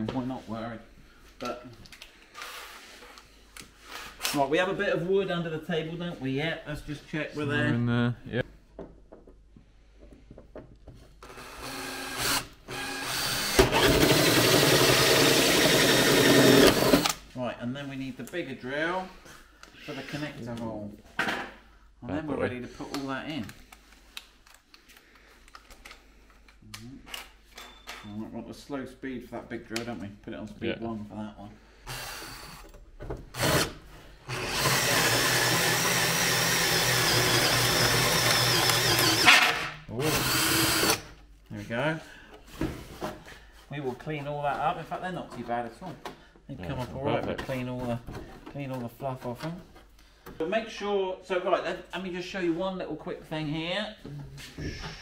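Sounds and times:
power drill cutting through panel: 11.2s - 17.2s, 31.9s - 32.6s, 33.3s - 41.1s.

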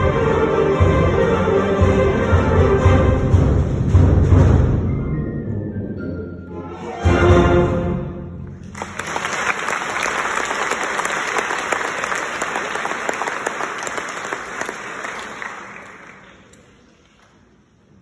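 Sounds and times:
audience applauding: 8.6s - 17.3s.

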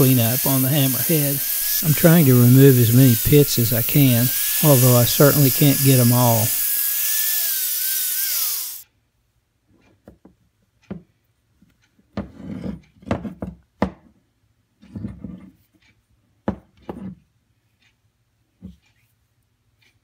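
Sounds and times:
angle grinder spinning down: 0.0s - 8.8s.

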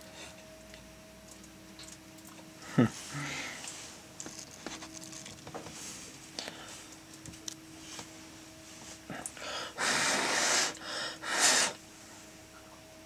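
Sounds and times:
steady low hum: 0.0s - 13.0s
person exhaling heavily: 3.1s - 3.6s, 9.1s - 11.8s.

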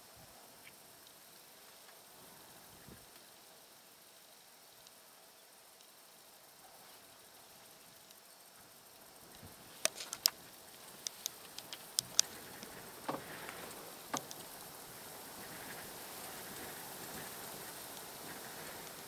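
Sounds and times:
faint steady hiss: 0.0s - 19.0s
sharp irregular clicks: 9.3s - 10.4s, 11.0s - 14.6s.

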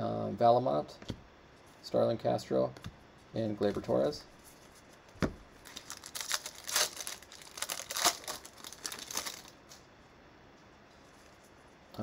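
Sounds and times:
card pack wrapper tearing and crinkling: 5.6s - 9.7s.

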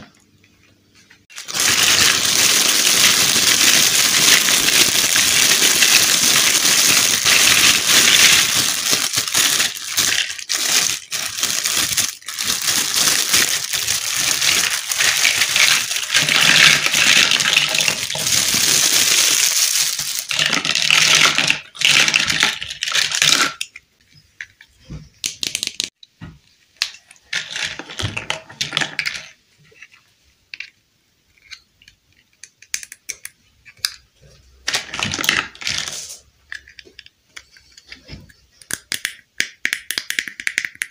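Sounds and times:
plastic bag crinkling: 1.3s - 23.6s
plastic toy pieces rattling: 1.3s - 23.8s
plastic toy parts snapping together: 31.4s - 34.0s, 38.6s - 40.9s.

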